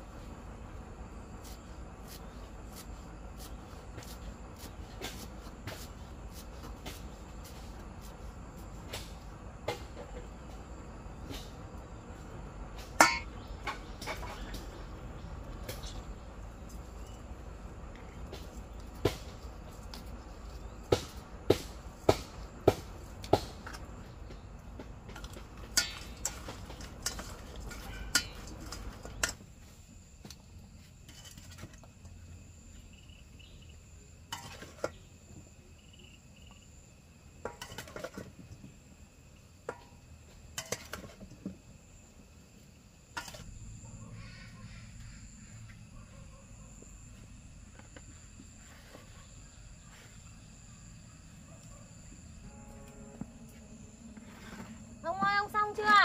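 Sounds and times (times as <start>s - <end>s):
insects chirping: 0.0s - 56.0s
utensils and dishes clinking: 13.0s - 14.6s.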